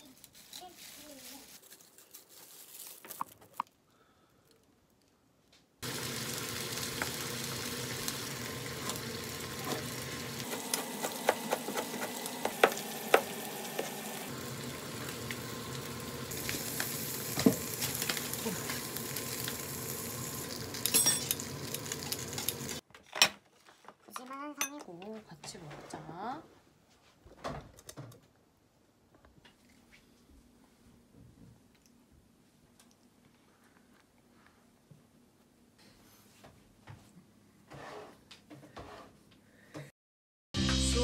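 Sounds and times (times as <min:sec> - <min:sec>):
food sizzling in a pan: 0:05.8 - 0:22.8.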